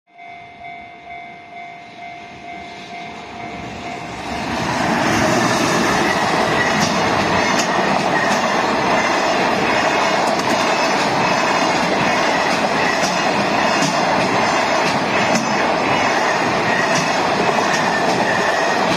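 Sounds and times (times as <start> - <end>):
freight train rumbling past: 0.2 - 18.9
wheels clacking over rail joints: 4.8 - 18.9.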